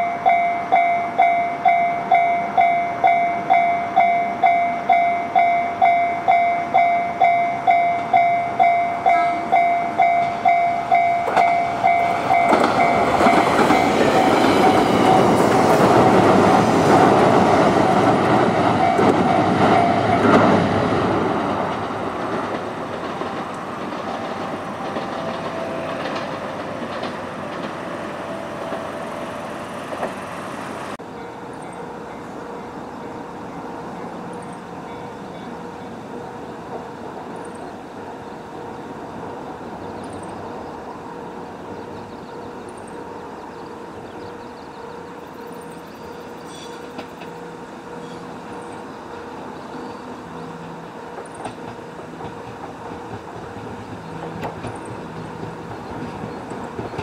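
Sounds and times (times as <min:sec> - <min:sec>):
level-crossing bell ringing: 0:00.0 - 0:14.4
train passing with wheel rumble: 0:00.0 - 0:57.0.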